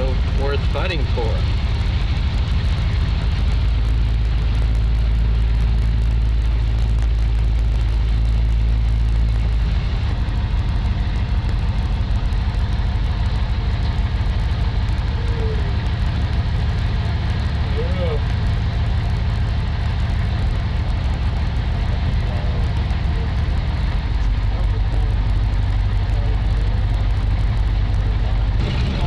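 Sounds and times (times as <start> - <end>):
truck engine and road rumble: 0.0 - 29.0.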